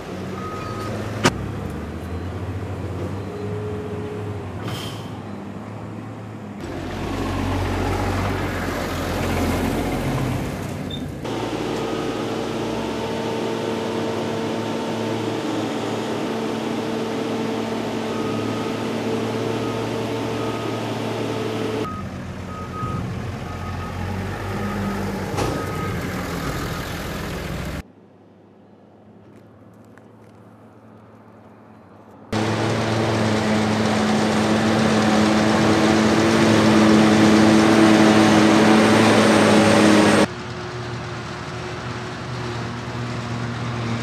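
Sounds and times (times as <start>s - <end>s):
tractor diesel engines under load: 0.0s - 27.8s, 29.1s - 44.0s
reversing alarm beeps: 0.4s - 1.0s.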